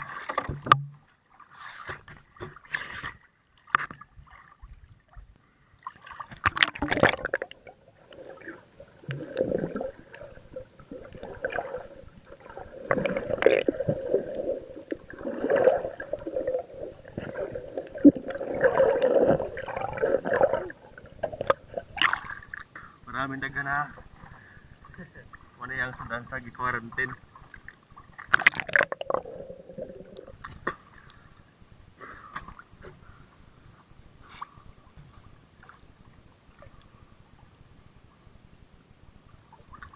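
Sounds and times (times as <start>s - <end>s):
knocks and splashes: 0.0s - 1.1s, 5.9s - 7.5s
muffled underwater water sloshing: 0.0s - 39.9s.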